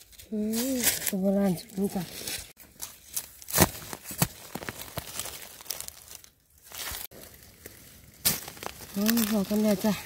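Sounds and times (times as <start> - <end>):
dry leaves and twigs crackling: 0.0 - 10.0
twig snapping: 2.8 - 9.8.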